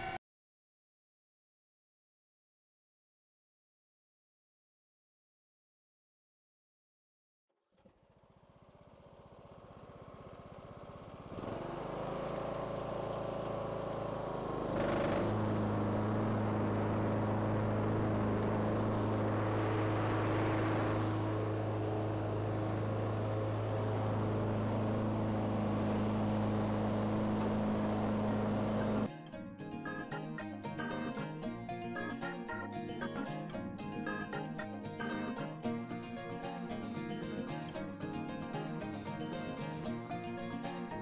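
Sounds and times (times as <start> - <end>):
lawn tractor engine running: 7.8 - 29.1
mower deck deep hum: 8.0 - 41.0.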